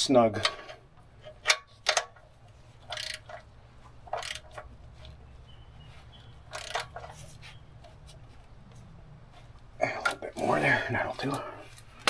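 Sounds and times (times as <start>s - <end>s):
socket ratchet ratcheting: 2.8s - 4.7s, 6.4s - 7.2s
sharp ratchet click: 2.9s - 3.4s, 4.1s - 4.6s, 6.5s - 7.0s.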